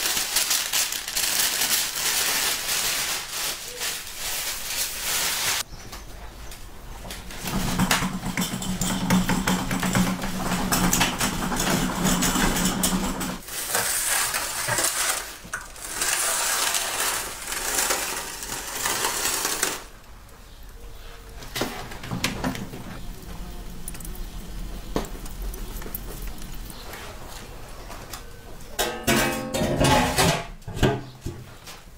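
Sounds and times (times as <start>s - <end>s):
aluminium foil crinkling: 0.0s - 5.7s, 13.4s - 20.0s, 22.9s - 28.8s
metal tray scraping and clinking: 28.8s - 30.5s.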